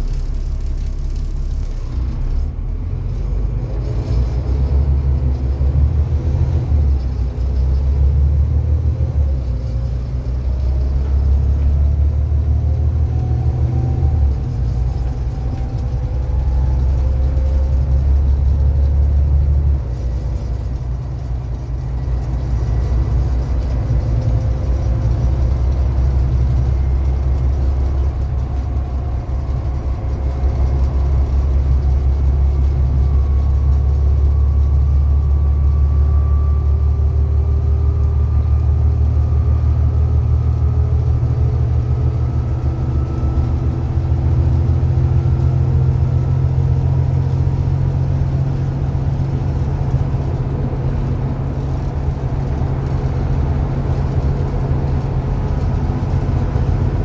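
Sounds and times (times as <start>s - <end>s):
bus diesel engine drone: 0.0s - 57.0s.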